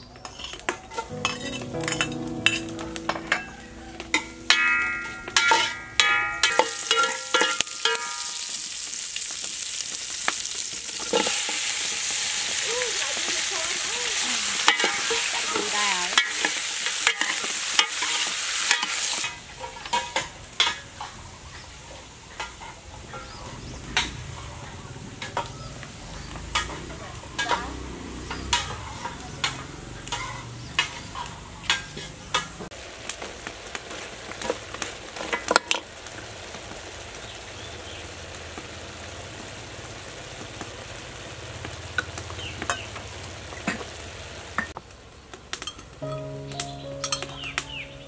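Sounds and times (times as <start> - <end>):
meat sizzling in a pot: 3.7 - 47.9
metal ladle clinking on pot: 4.5 - 8.5.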